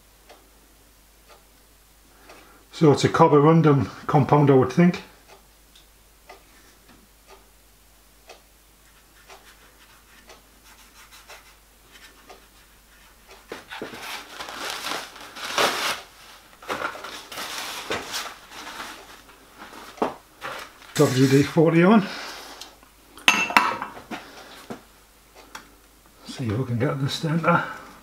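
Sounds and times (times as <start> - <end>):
faint ticking: 0.0 - 2.8, 5.1 - 13.6
hand rubbing and scraping: 8.8 - 22.6.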